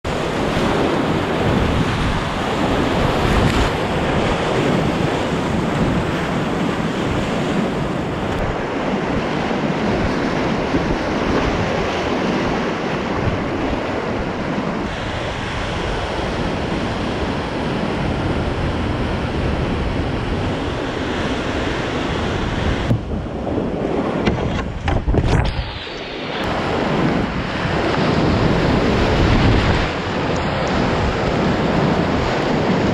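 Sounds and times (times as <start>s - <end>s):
air buffeting microphone: 0.1s - 32.9s.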